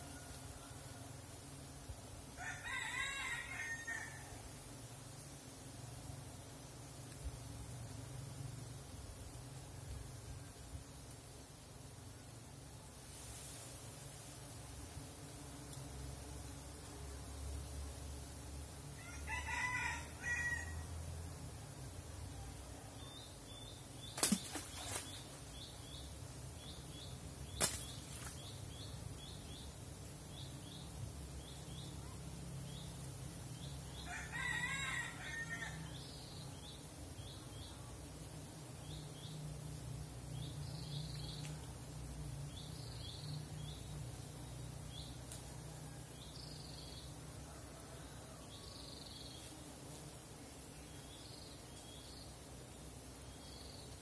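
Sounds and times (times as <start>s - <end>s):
rooster crowing: 2.4s - 4.4s, 19.0s - 20.9s, 34.0s - 36.0s.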